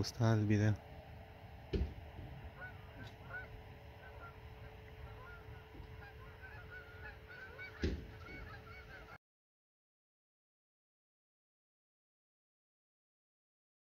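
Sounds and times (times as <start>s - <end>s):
thump: 1.7s - 2.0s, 7.8s - 8.1s
geese honking: 2.0s - 9.2s.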